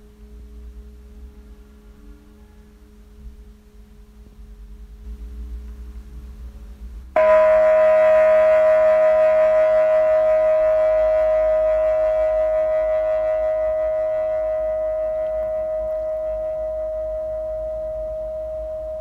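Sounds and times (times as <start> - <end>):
faint steady hum: 0.0 - 19.0
sustained musical drone: 7.2 - 19.0.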